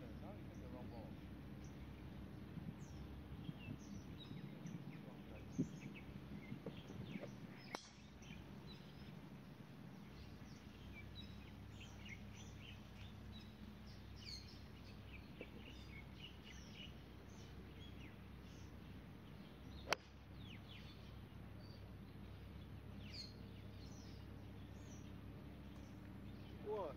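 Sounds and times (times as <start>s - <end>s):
golf club striking ball: 7.6s - 9.1s, 19.8s - 20.2s.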